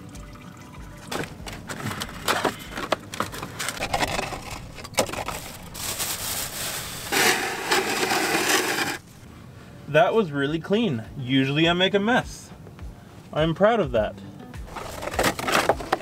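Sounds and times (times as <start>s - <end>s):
rustling and scraping: 1.1s - 9.3s, 14.7s - 16.0s.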